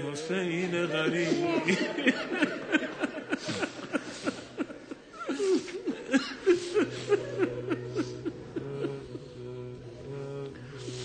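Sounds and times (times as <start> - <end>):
crowd sobbing and weeping: 0.0 - 11.0
steady low music tone: 6.0 - 11.0.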